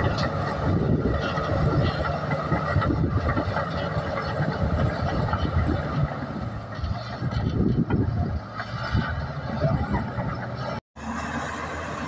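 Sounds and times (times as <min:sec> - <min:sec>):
bulldozer diesel engine running: 0:00.0 - 0:12.0.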